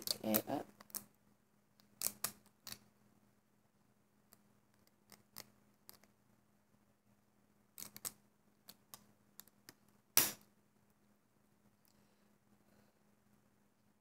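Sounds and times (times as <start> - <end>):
plastic clicks and snaps: 7.8 - 10.5.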